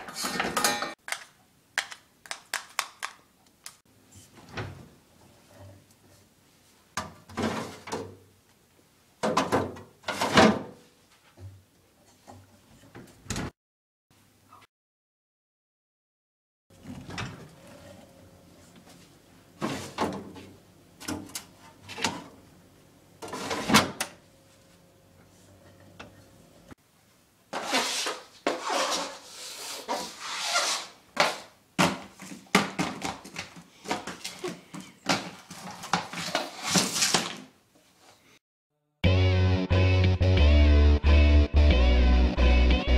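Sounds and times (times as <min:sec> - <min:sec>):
rustling and scraping: 0:27.6 - 0:31.5, 0:32.1 - 0:38.4.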